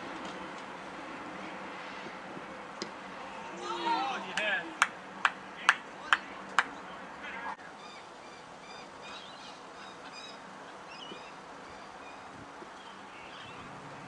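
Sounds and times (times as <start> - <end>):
sharp handclaps: 4.3 - 6.8
faint birds chirping: 5.5 - 14.0.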